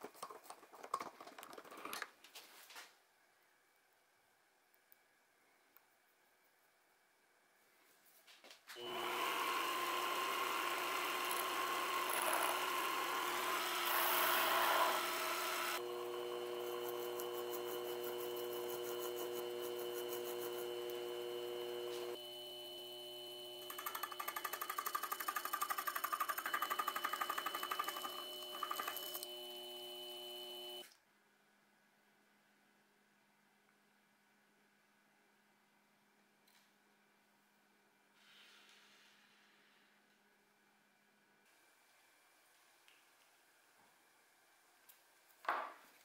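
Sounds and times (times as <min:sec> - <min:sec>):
filing spinning part: 0:08.8 - 0:30.8
lathe motor whine: 0:08.8 - 0:30.8
lathe tool cutting metal: 0:08.8 - 0:30.8
slitting saw ticking chatter: 0:23.7 - 0:29.0.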